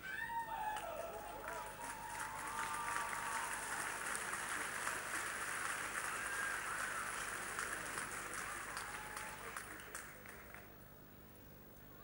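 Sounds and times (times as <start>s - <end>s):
audience cheering: 0.0s - 9.8s
audience clapping: 0.4s - 10.8s.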